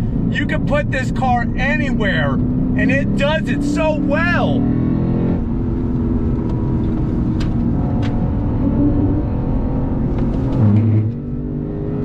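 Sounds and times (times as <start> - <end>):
car engine running: 0.0 - 12.0
tyre and road noise: 0.0 - 12.0.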